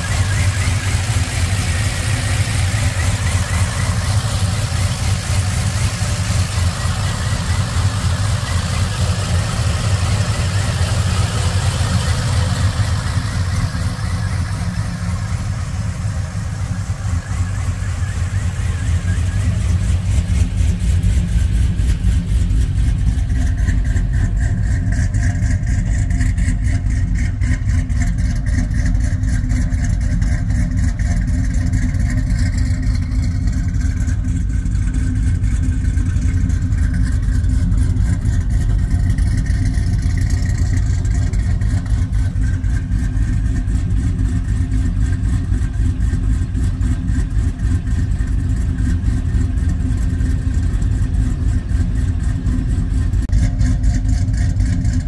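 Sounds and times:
vee eight engine idling: 0.0s - 55.0s.

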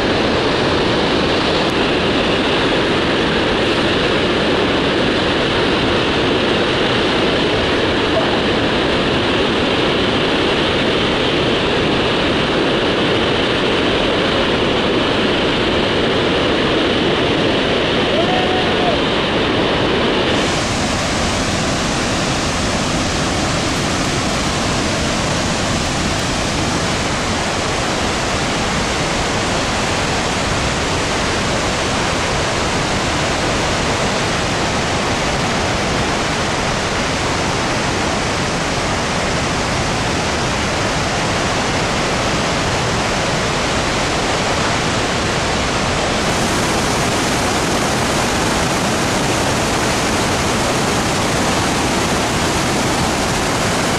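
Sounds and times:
waterfall rushing: 0.0s - 53.9s.

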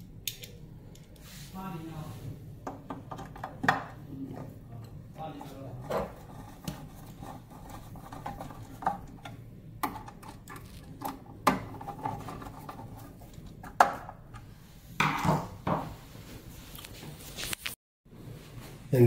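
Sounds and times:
screwdriver clicks and metal knocks: 0.0s - 1.1s.

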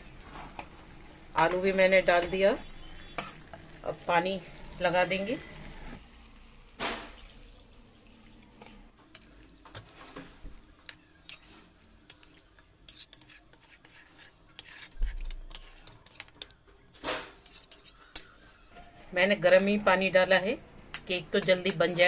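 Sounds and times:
metal spoon scraping a metal pot: 11.2s - 18.5s.

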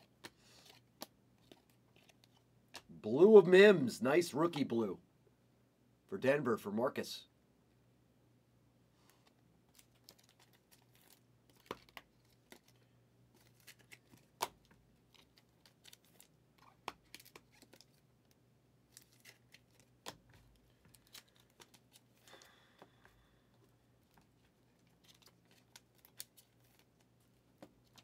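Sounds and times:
trading cards tapping and crinkling: 0.0s - 2.9s, 9.1s - 28.0s.

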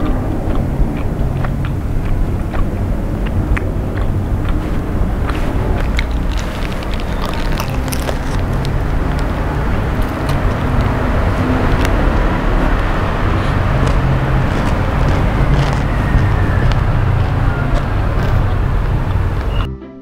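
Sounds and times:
loud rumbling background noise: 0.0s - 19.7s
paper wrapper crinkling: 5.3s - 11.0s.

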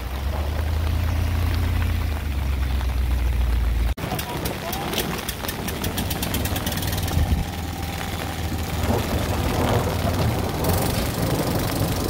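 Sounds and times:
diesel engine idling: 0.6s - 12.0s
rapid light ticking: 4.0s - 12.0s.

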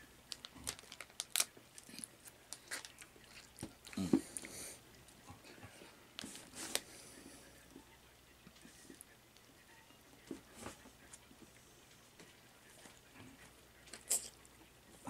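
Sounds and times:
chewing and mouth noises: 0.4s - 5.7s.

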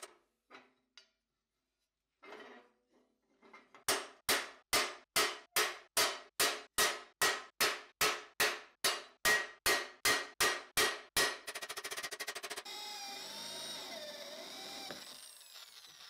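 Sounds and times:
hammer striking steel punch: 3.9s - 11.5s.

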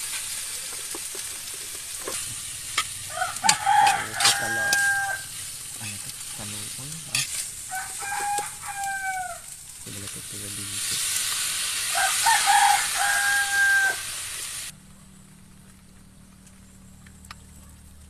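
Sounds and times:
spatula stirring in wok: 0.0s - 9.0s
octopus sizzling in a wok: 0.0s - 14.8s
rooster crowing: 3.0s - 5.3s, 7.7s - 9.5s, 11.9s - 14.2s.

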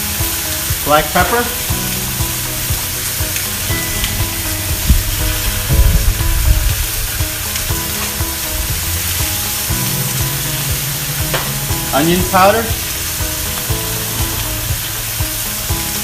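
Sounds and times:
low thumps: 0.0s - 16.0s
meat sizzling on a griddle: 0.0s - 16.0s.

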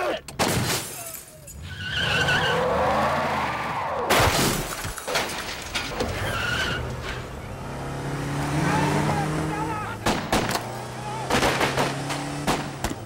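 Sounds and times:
tyres squealing: 1.0s - 3.9s, 5.8s - 7.6s
car engine revving: 6.7s - 13.0s
sharp crack: 10.0s - 13.0s.

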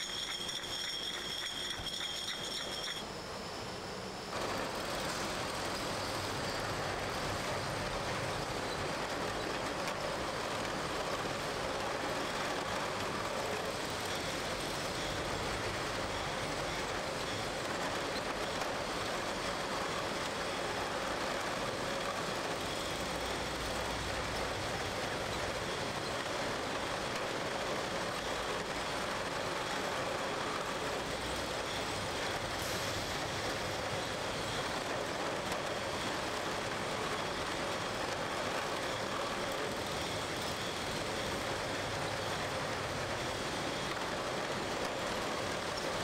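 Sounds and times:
bottling line machinery: 0.0s - 3.4s.

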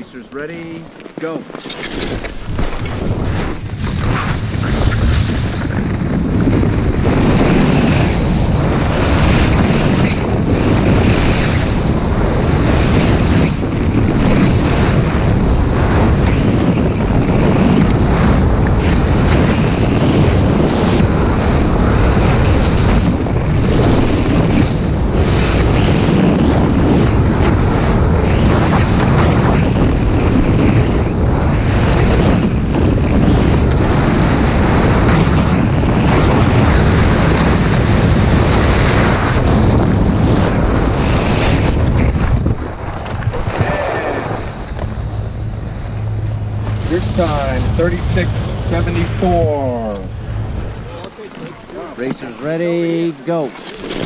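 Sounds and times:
skis scraping on snow: 0.0s - 11.7s, 38.0s - 54.0s
wind rushing over microphone: 0.0s - 54.0s.

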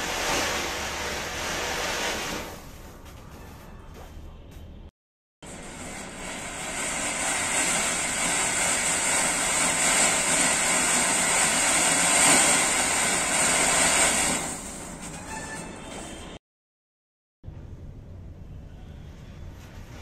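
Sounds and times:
firework fountain hissing: 0.0s - 2.7s, 5.4s - 15.1s.

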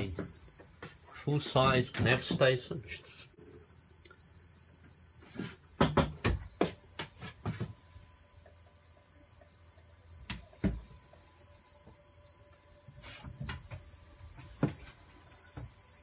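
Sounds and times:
knocks and thumps: 5.5s - 7.8s.

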